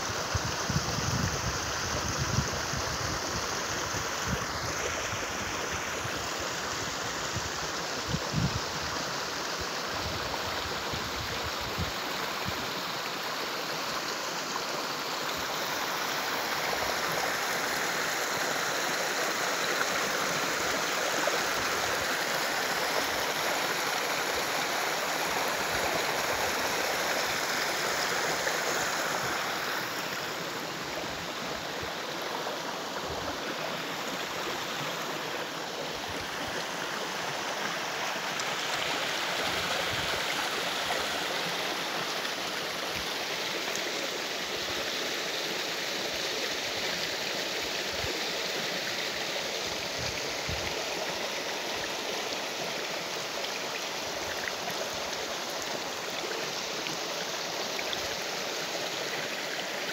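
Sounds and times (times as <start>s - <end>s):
creek babbling over stones: 0.0s - 59.9s.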